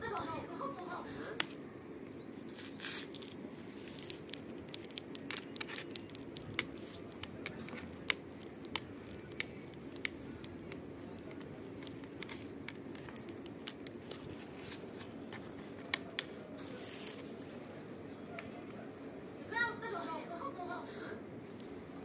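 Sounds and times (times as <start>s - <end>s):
faint steady hum: 0.0s - 22.0s
kitten claws clicking and scratching: 2.5s - 16.4s.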